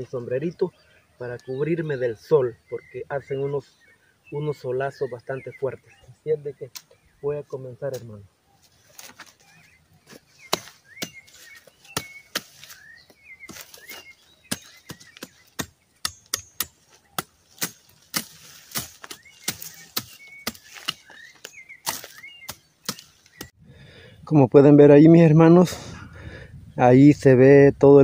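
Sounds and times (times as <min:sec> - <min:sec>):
small birds chirping: 0:00.0 - 0:28.0
machete chopping brush: 0:10.1 - 0:23.5.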